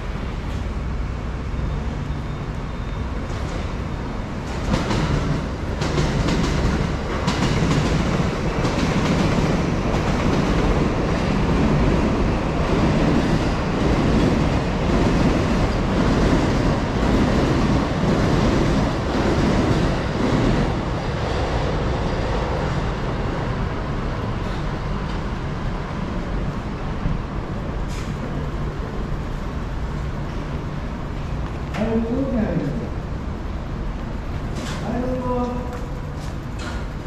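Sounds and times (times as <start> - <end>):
train rumbling past: 0.0 - 37.0
wheels clacking over rail joints: 4.4 - 20.6.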